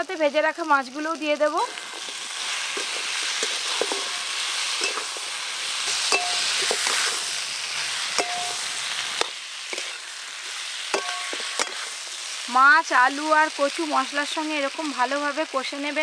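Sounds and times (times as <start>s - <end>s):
food sizzling in a pan: 0.0s - 16.0s
metal spatula scraping a pan: 1.9s - 12.4s.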